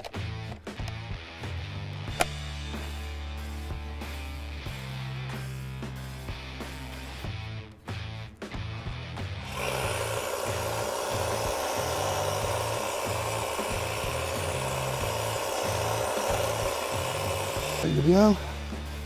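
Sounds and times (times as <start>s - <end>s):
background music with bass beat: 0.0s - 9.5s
hedge trimmer whining: 9.4s - 18.7s.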